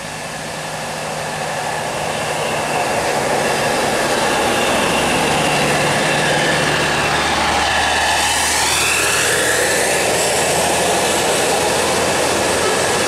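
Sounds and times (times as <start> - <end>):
bus diesel engine passing: 0.0 - 13.0
high engine whine: 0.0 - 13.0.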